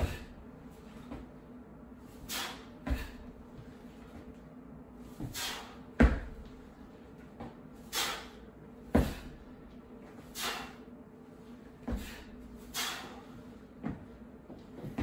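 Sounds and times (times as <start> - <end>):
forceful exhalations: 2.1 - 3.4, 5.0 - 6.2, 7.8 - 9.5, 10.2 - 11.0, 11.8 - 13.5
feet landing on wooden floor: 6.0 - 6.6, 8.9 - 9.4.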